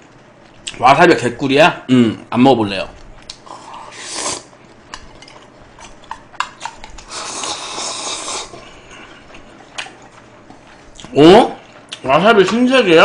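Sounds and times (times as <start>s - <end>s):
man slurping noodles: 3.4s - 4.5s, 7.0s - 8.8s.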